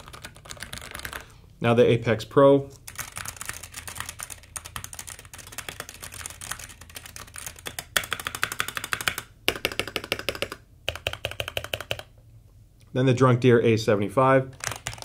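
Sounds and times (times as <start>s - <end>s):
mechanical keyboard typing: 0.0s - 1.2s, 2.9s - 12.1s, 14.6s - 15.0s.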